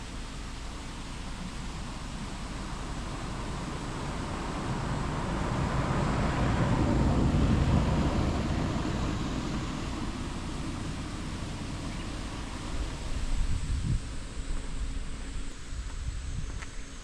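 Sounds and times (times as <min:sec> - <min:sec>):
vehicle passing: 0:02.8 - 0:13.2.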